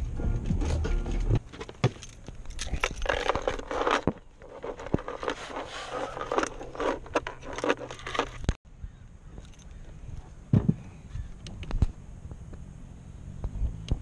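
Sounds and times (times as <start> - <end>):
scraping and rustling: 0.5 - 8.6.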